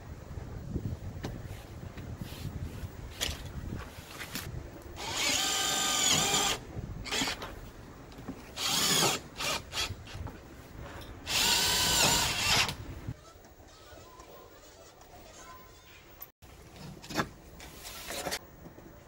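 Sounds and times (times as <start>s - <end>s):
cordless drill running: 5.0s - 7.4s, 8.6s - 9.9s, 11.3s - 12.8s.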